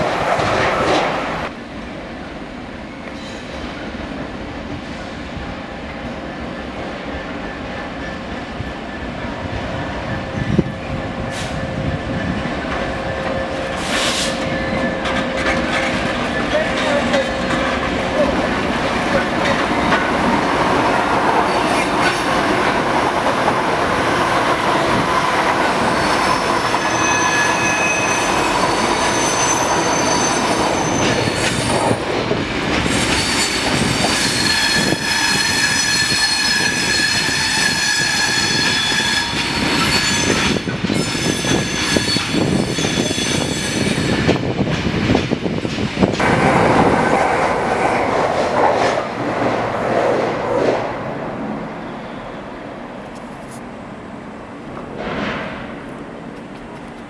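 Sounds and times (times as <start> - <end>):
train wagons rolling: 0.0 - 1.5, 10.9 - 50.9, 54.6 - 57.0.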